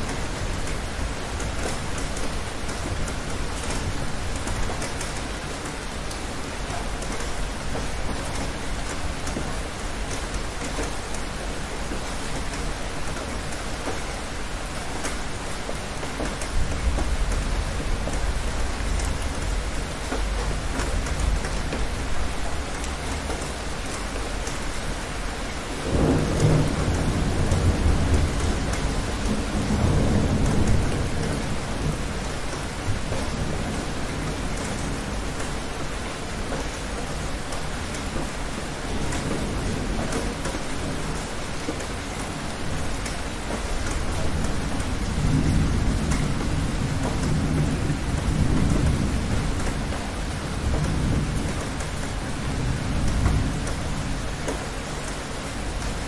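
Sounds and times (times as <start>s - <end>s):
steady rain: 0.0s - 56.0s
rolling thunder: 25.8s - 35.2s.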